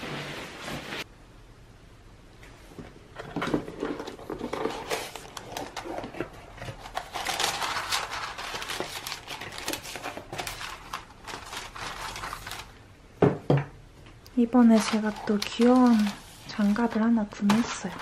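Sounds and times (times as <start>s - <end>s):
tissue paper rustling: 4.2s - 12.8s, 14.6s - 18.0s.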